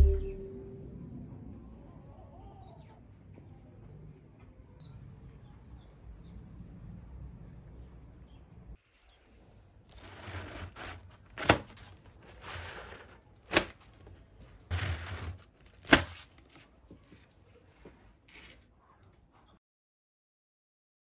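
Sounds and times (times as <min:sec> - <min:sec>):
paper towel rustling: 0:09.9 - 0:13.9, 0:14.7 - 0:17.3.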